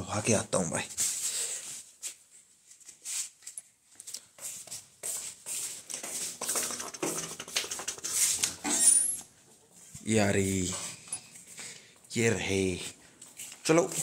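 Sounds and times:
flip-flop footsteps on stone: 3.9s - 8.6s.

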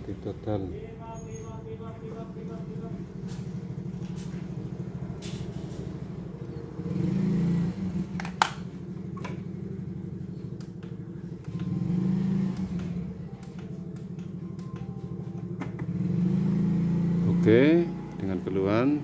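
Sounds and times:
small engine running: 11.4s - 13.1s.

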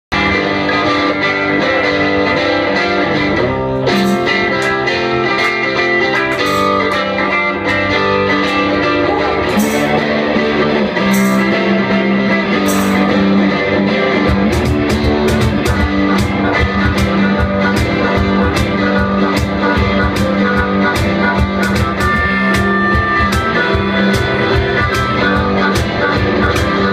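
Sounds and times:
rock guitar chords: 0.1s - 26.9s
high percussive strikes: 3.9s - 10.4s, 11.0s - 11.8s, 12.6s - 13.4s, 14.3s - 26.9s
steady drum beat: 3.9s - 26.9s.

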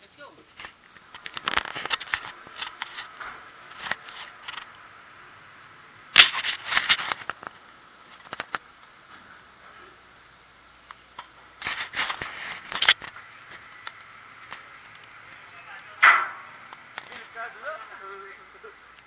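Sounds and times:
camera handling noise: 0.6s - 3.1s, 6.1s - 8.6s, 11.1s - 14.6s.

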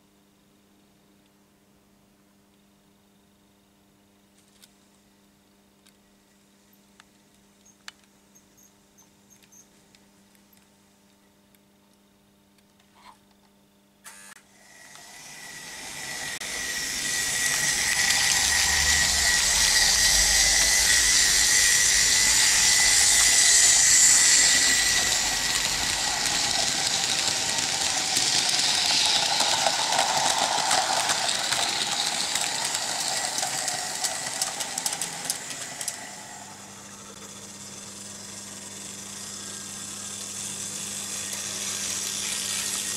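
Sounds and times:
low mains hum: 0.0s - 42.9s
model train motor whine: 14.0s - 42.9s
wheels rattling on track: 16.4s - 36.7s.

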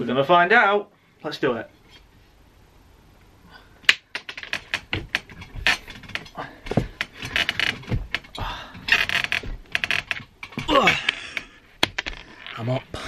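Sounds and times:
knocks and thumps on boards: 3.9s - 12.2s.

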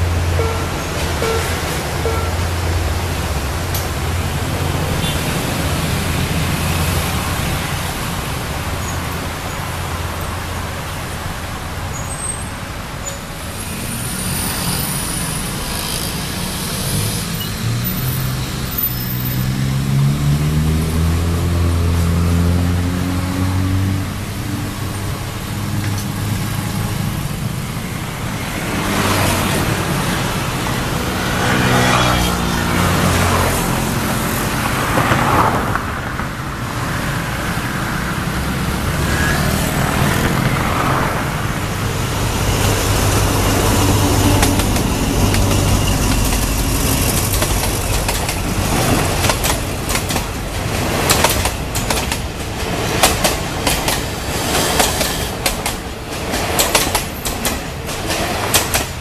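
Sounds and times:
vehicle passing by: 15.6s - 24.2s, 28.7s - 36.1s, 37.0s - 49.5s
train wheels clattering over rails: 39.4s - 59.0s.

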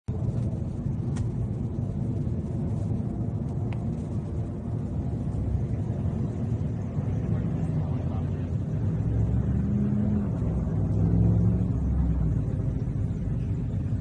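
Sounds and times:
car engine rumble from inside: 0.1s - 14.0s.

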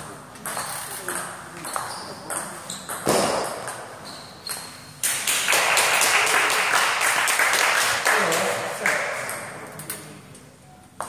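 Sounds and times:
audience clapping: 5.0s - 9.4s.

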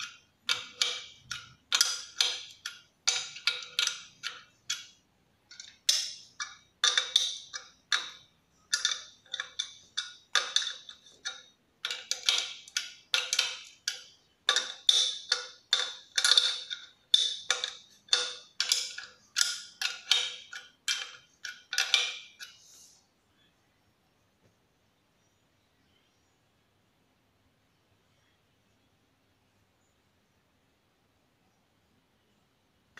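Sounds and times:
spanner clicking on metal: 0.0s - 22.6s.

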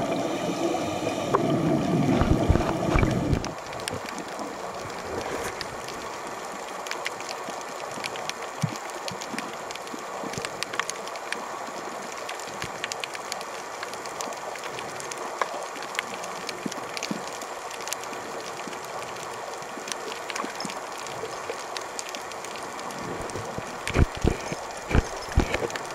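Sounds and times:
underwater hiss: 0.0s - 3.4s
sharp crackling clicks: 12.2s - 19.2s, 19.8s - 25.9s.

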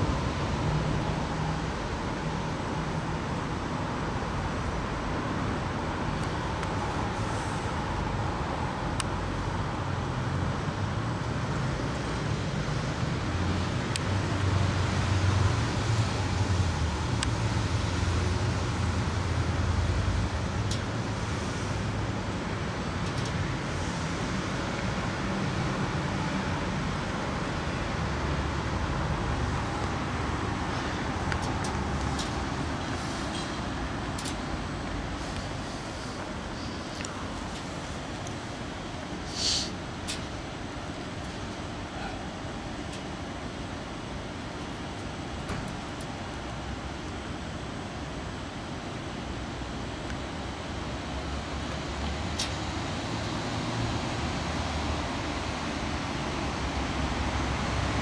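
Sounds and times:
distant road traffic rumble: 0.0s - 58.0s.

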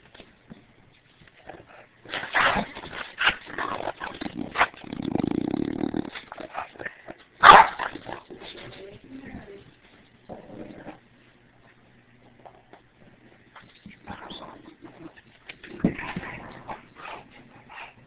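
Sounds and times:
dog growling: 1.4s - 8.6s, 10.2s - 11.1s, 14.0s - 18.0s
dog barking: 7.4s - 7.8s.

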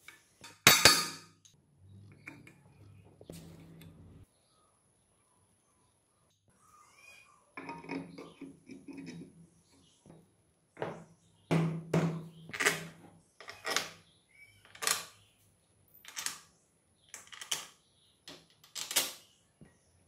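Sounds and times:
metal parts clinking and knocking: 16.0s - 16.5s, 17.1s - 19.2s.

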